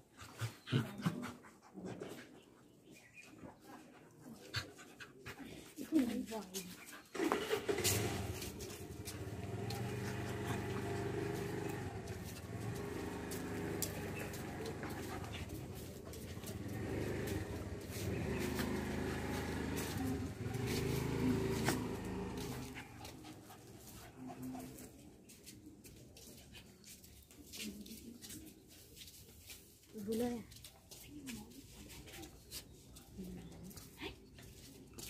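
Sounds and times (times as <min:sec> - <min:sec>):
puppies growling: 0:07.1 - 0:25.0.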